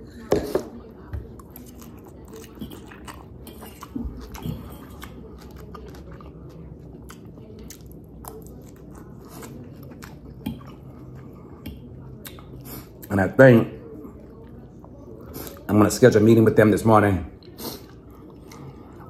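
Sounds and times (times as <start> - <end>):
person chewing noodles: 1.4 - 13.2, 17.4 - 19.0.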